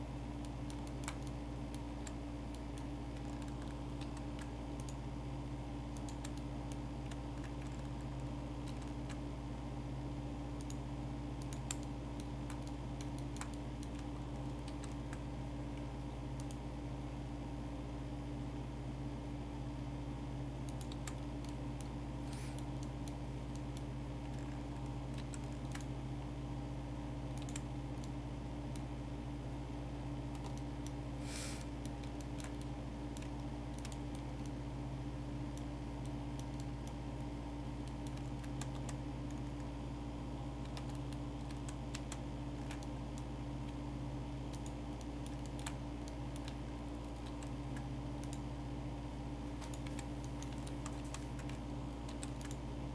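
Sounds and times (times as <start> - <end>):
steady low hum: 0.0 - 52.9
keyboard and mouse clicks: 0.4 - 5.0, 5.9 - 9.2, 11.4 - 16.6, 20.6 - 25.9, 27.3 - 28.9, 30.3 - 34.6, 35.5 - 39.7, 40.6 - 43.8, 44.5 - 48.5, 49.6 - 52.6.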